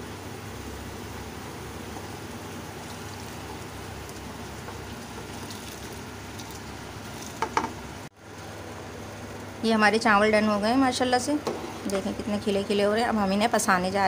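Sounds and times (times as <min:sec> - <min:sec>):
water bubbling at a rolling boil: 0:00.0 - 0:10.0.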